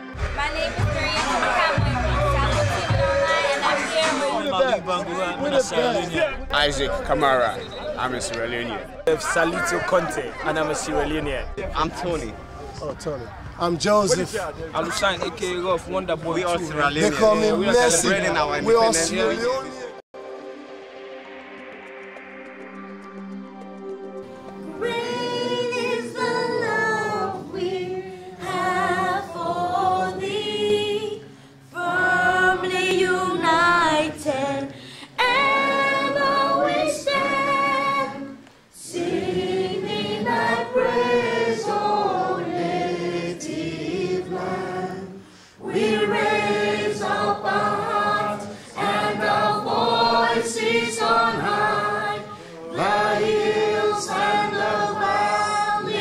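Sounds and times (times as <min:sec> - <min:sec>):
woman singing an anthem: 0:24.6 - 0:38.4.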